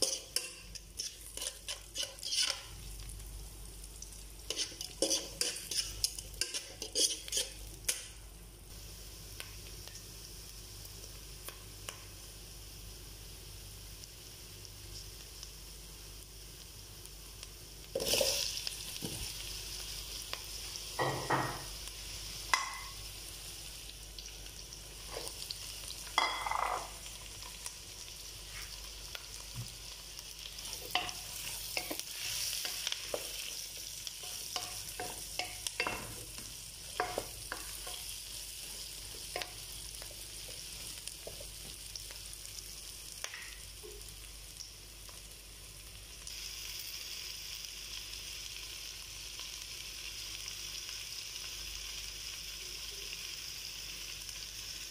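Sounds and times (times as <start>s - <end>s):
utensil scraping and knocking pan: 0.0s - 2.7s, 4.5s - 7.6s
vegetables sizzling in oil: 0.0s - 54.9s.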